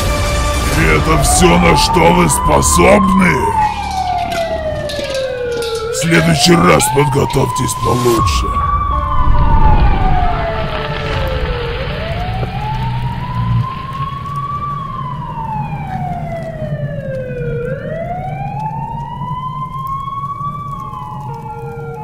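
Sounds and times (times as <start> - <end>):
steady low rumble: 0.0 - 15.1
wailing siren: 0.0 - 22.0.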